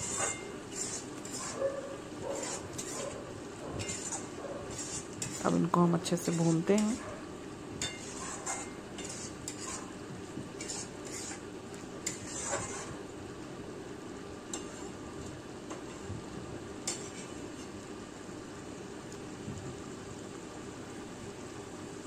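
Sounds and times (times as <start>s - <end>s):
metal spatula scraping a pan: 0.0s - 1.7s, 2.3s - 3.2s, 3.8s - 7.0s, 7.8s - 10.0s, 10.6s - 13.0s, 14.5s - 15.0s, 16.8s - 17.7s
low frying sizzle: 0.0s - 22.0s.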